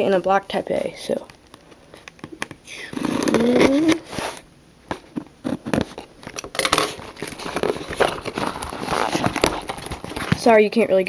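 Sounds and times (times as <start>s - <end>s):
packing tape tearing: 2.0s - 4.4s, 5.4s - 10.4s
cardboard scraping and crackling: 2.8s - 10.6s.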